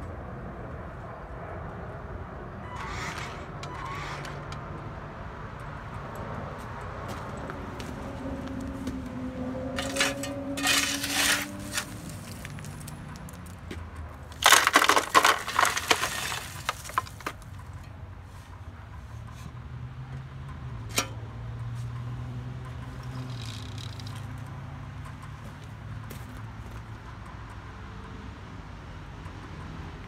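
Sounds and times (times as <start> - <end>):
rocks and dirt clattering into truck bed: 9.7 - 17.9.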